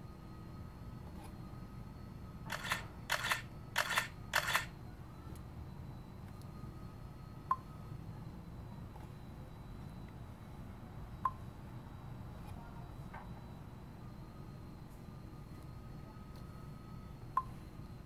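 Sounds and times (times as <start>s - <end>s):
camera shutter sound: 2.5s - 4.7s.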